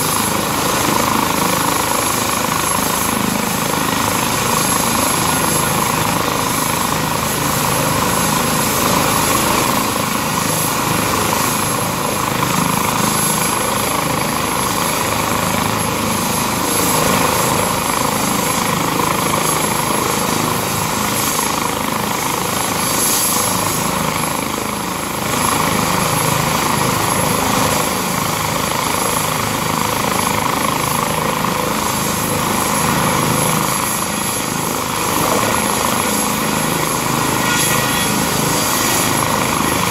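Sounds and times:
helicopter turbine and rotor: 0.0s - 39.9s
high-pitched whine: 35.0s - 39.9s.

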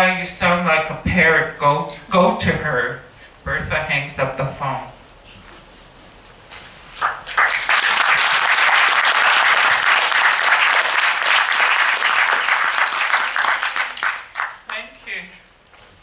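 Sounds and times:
audience applauding: 7.0s - 14.8s.

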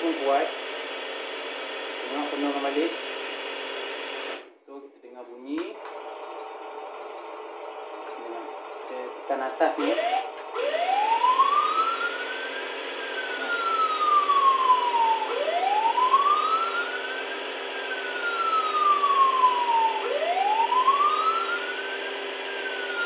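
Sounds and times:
toy siren wailing: 9.8s - 23.0s.

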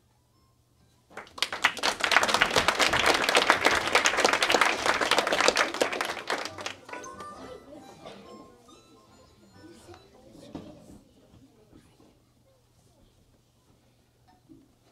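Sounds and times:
audience applauding: 1.2s - 7.4s.

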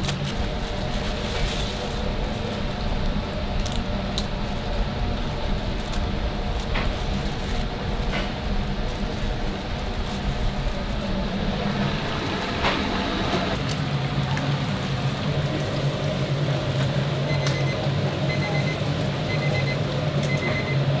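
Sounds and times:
low machine hum: 0.0s - 21.0s
faint electronic beeping: 17.2s - 20.8s.

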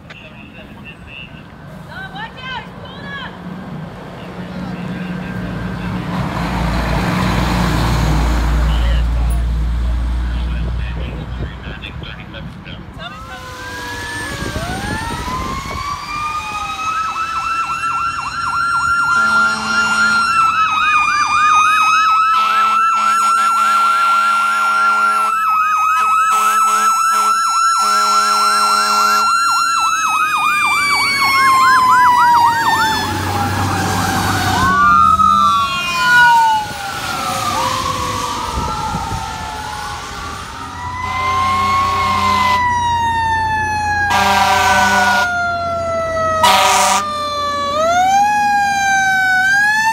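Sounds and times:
electronic siren yelping: 13.0s - 49.9s
air horn blasts: 19.1s - 20.4s, 22.4s - 25.3s, 26.0s - 29.3s, 41.0s - 42.7s, 44.1s - 45.3s, 46.4s - 47.1s.

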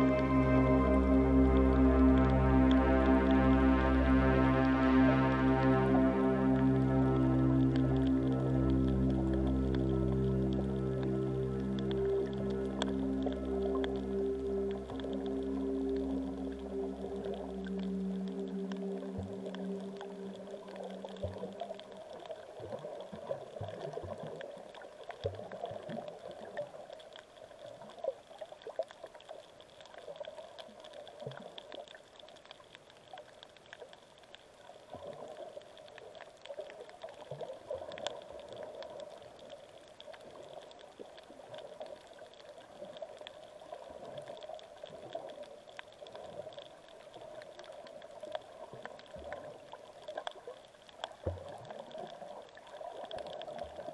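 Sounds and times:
faint underwater clicks and pops: 0.0s - 53.9s
muffled underwater wash: 0.0s - 53.9s.

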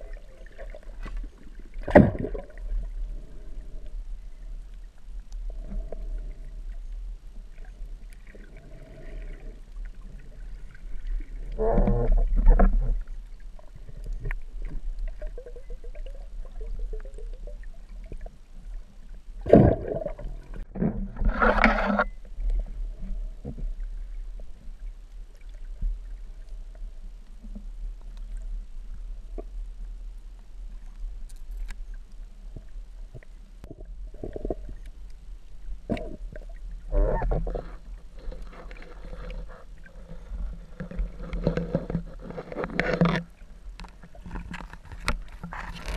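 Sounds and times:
underwater rumble of moving water: 0.0s - 45.9s
muffled underwater gurgling: 7.8s - 14.3s, 35.8s - 42.0s.

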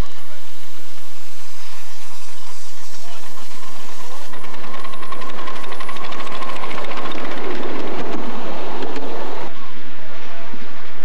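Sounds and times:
steam hissing: 0.4s - 9.5s
steam locomotive chuffing: 1.6s - 9.0s.

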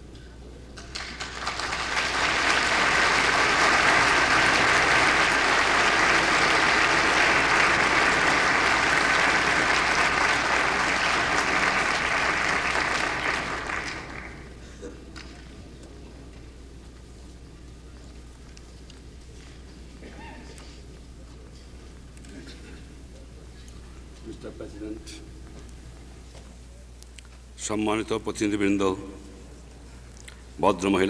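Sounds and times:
crowd applauding: 0.8s - 14.6s.

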